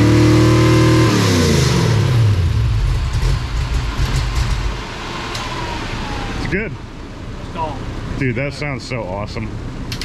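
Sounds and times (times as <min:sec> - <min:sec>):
engine revving and idling roughly: 0:00.0 - 0:06.3.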